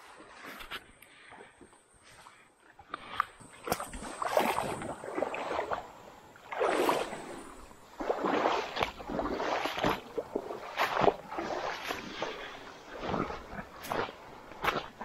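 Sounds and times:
footsteps wading through water: 0.0s - 15.0s.

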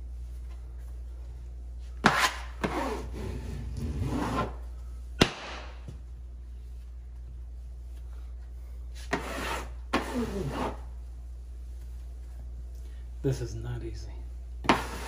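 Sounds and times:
raspy scraping on wallpaper: 2.0s - 4.6s, 9.0s - 10.9s.

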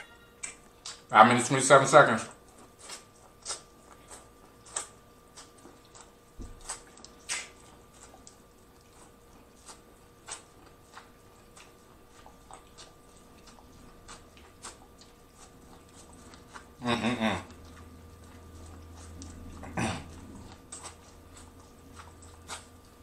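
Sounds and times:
faint steady hum: 0.0s - 23.0s
crunching corn on the cob: 2.2s - 23.0s.

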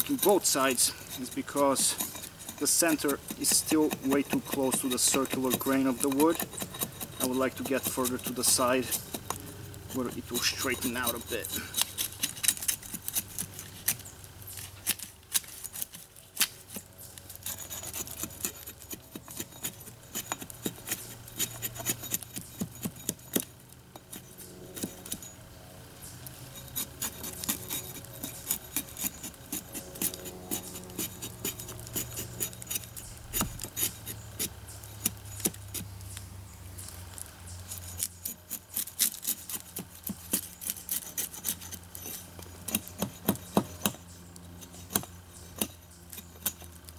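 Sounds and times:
axe head chopping wood: 32.7s - 35.9s, 42.7s - 44.0s.

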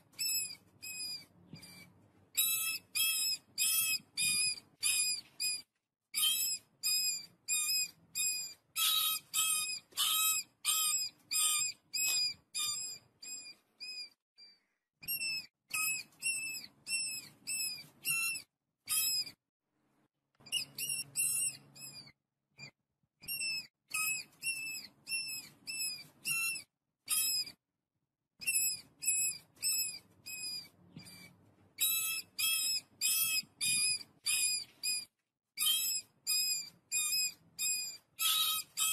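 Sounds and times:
high whistled animal calls: 0.1s - 19.4s, 28.4s - 38.9s.

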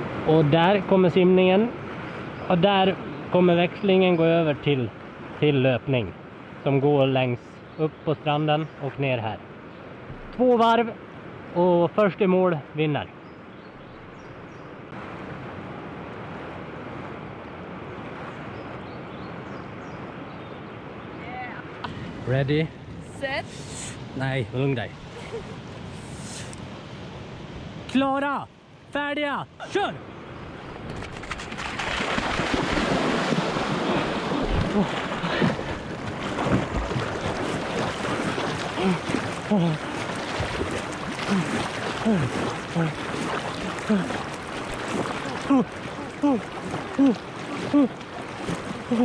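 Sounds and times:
flowing river water rushing: 0.0s - 7.4s, 30.1s - 49.0s.

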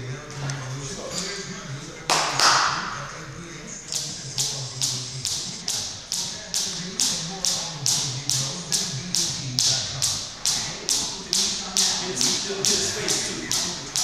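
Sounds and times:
jump rope slapping wooden floor: 3.9s - 14.0s.

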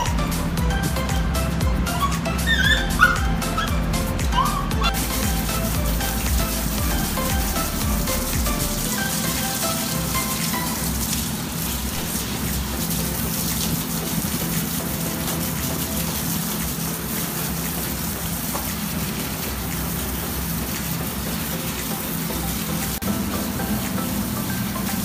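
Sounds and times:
shower head spraying water: 0.0s - 25.0s.

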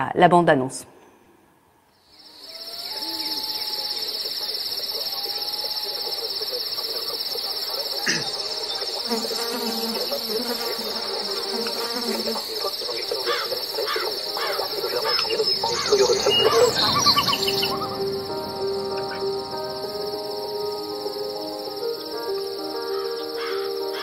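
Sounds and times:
high-pitched insect chirring: 2.1s - 24.0s.

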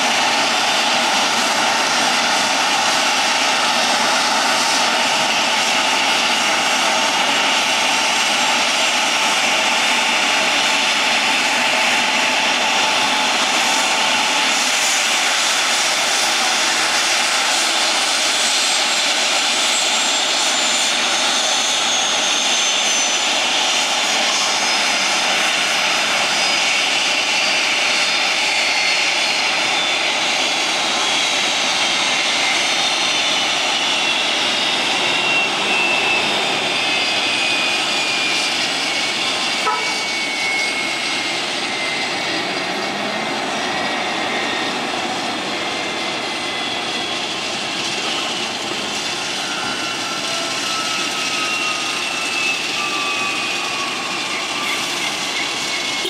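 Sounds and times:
jet engines running: 0.0s - 56.0s
turbine whine falling in pitch: 29.5s - 56.0s.

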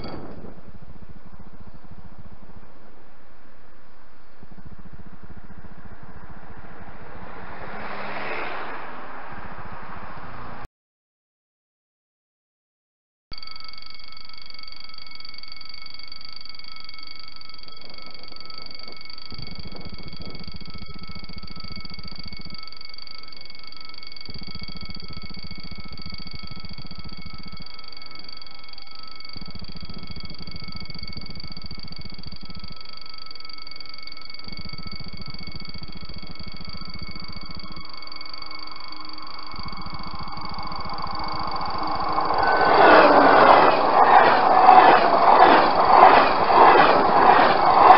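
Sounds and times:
low buzz: 0.0s - 10.7s, 34.4s - 47.9s.

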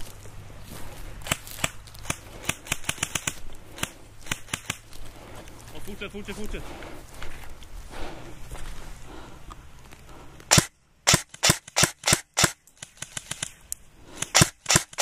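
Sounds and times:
airsoft guns firing: 1.2s - 4.9s, 10.5s - 15.0s.

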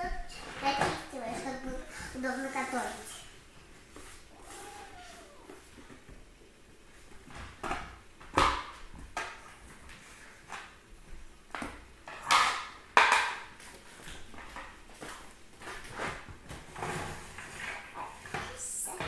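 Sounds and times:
plastic toys clattering on table: 12.1s - 13.6s.

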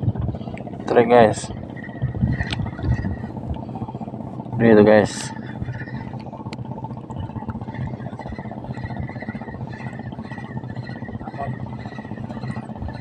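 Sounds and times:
fishing reel whirring: 0.0s - 13.0s.

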